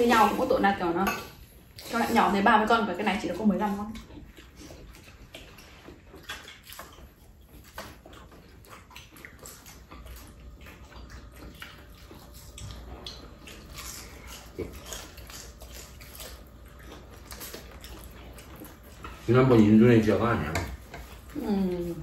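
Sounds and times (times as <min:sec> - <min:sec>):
people chewing crispy food: 0:00.0 - 0:22.0.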